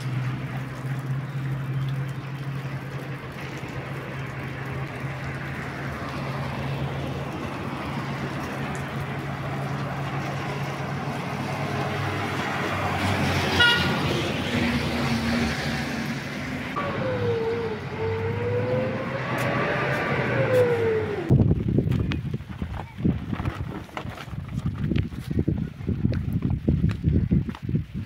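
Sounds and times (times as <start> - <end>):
car horn toot: 13.5 - 14.0.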